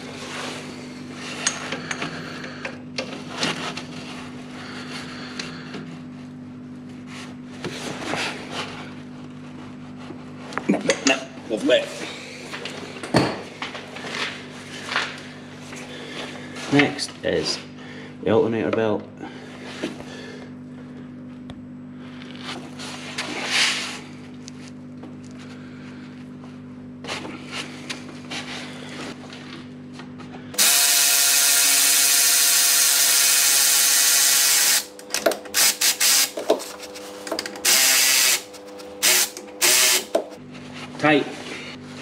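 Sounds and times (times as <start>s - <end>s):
cordless ratchet spinning: 30.6s - 34.9s, 37.6s - 38.4s.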